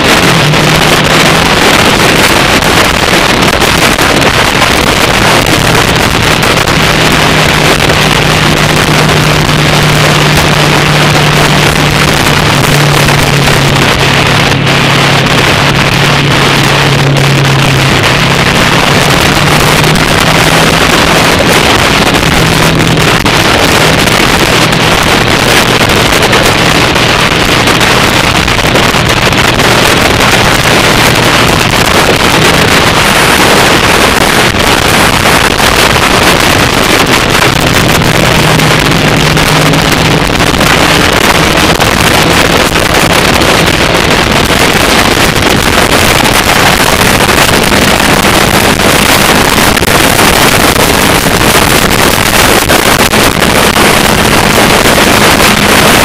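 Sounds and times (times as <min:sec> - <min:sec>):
motorcycle engine droning: 0:00.0 - 0:56.0
wind rush on microphone: 0:00.0 - 0:56.0.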